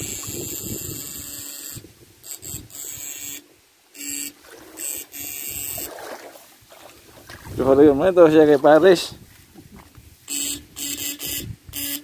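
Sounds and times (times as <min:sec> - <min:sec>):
high-pitched electrical buzz: 0:00.0 - 0:06.0, 0:10.2 - 0:12.0.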